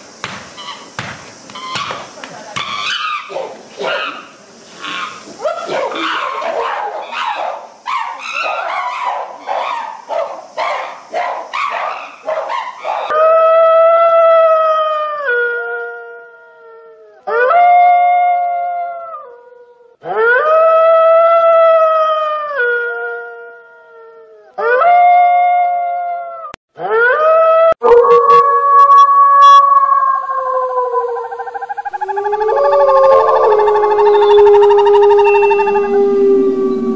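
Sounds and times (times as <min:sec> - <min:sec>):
wolf howling: 0:11.8 - 0:36.9.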